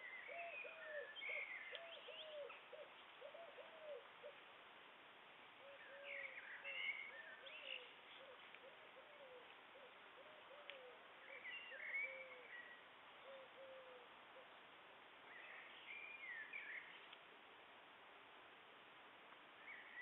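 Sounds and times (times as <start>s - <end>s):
songbird whistling: 11.3s - 12.8s.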